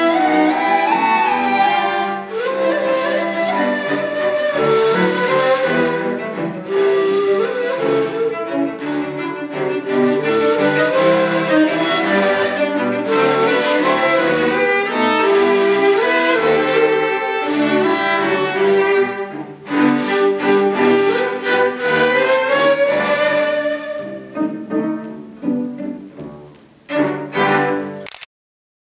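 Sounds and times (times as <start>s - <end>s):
end-blown reed flute melody: 0.0s - 8.6s
cellos playing: 0.0s - 28.0s.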